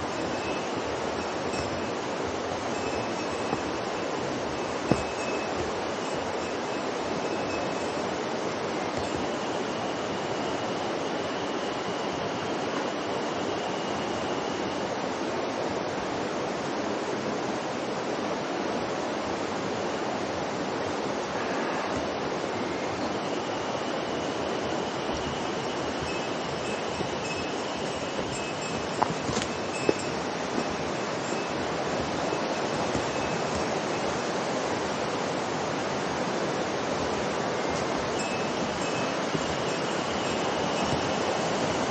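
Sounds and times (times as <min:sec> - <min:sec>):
river water rushing: 0:00.0 - 0:41.9.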